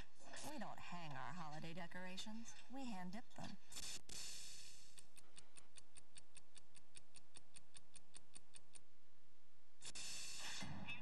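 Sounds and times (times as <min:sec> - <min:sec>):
clock-like ticking: 0:04.9 - 0:08.9.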